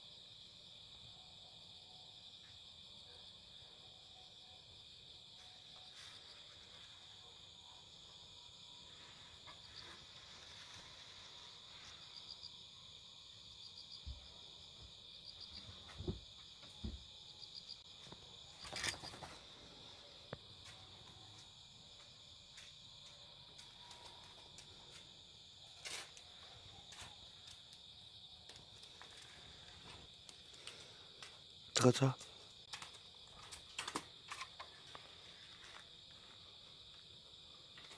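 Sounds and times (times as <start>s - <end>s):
crickets chirping: 0.0s - 37.9s.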